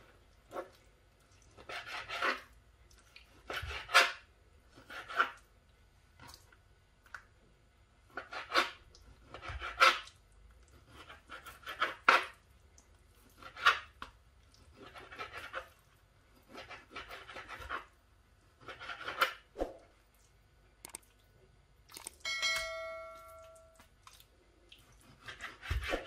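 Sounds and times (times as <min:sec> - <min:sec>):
bell-like chime: 0:22.2 - 0:23.8
knife slicing on cutting board: 0:25.0 - 0:26.0.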